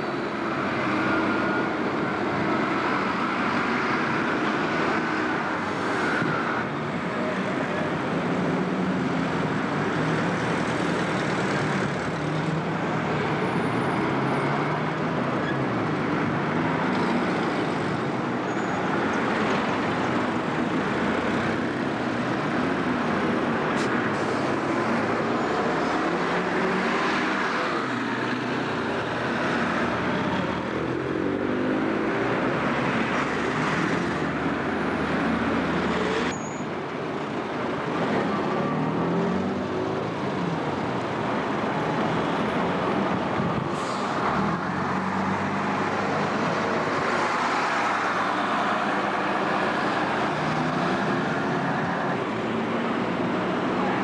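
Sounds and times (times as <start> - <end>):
diesel bus engines: 0.0 - 54.0
road noise: 0.0 - 54.0.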